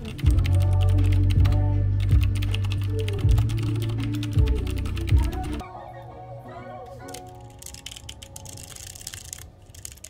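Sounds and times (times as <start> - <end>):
keyboard typing: 0.0 - 5.6, 7.0 - 10.0
music with deep bass: 0.0 - 7.5.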